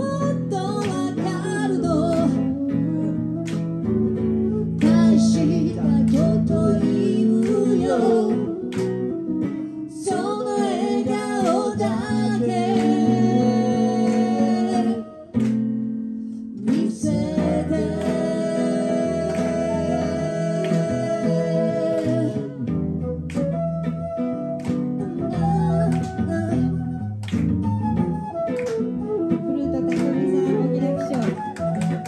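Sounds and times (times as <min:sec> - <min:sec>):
woman singing: 0:00.0 - 0:03.2, 0:04.5 - 0:08.8, 0:09.5 - 0:15.3, 0:16.6 - 0:22.7, 0:25.0 - 0:27.0, 0:29.3 - 0:32.0
flute: 0:00.0 - 0:32.0
strummed guitar: 0:00.0 - 0:32.0.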